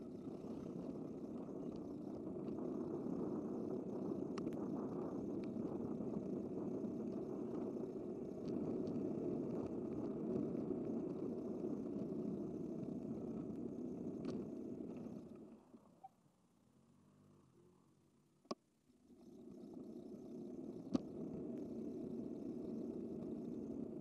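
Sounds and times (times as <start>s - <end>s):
bicycle road noise: 0.0s - 15.6s
faint ticks: 0.0s - 16.2s, 19.3s - 24.0s.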